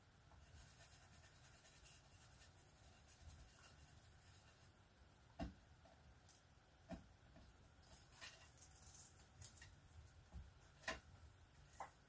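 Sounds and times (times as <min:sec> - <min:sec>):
foam brush rubbing on card: 0:00.4 - 0:04.8.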